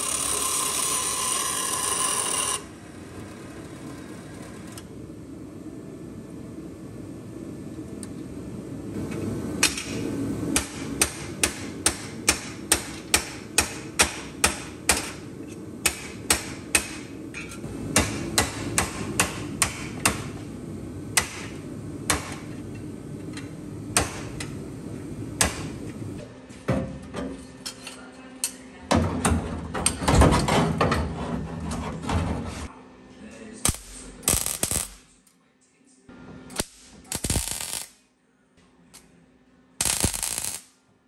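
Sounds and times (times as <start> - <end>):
low shop hum: 0.0 - 41.0
hammer striking sheet steel: 10.6 - 15.2, 15.8 - 17.1, 17.9 - 20.3.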